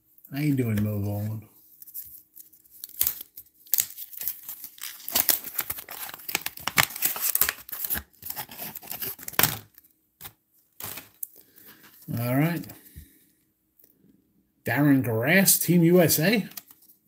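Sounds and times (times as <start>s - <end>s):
wax paper wrapper crinkling: 0.6s - 9.9s.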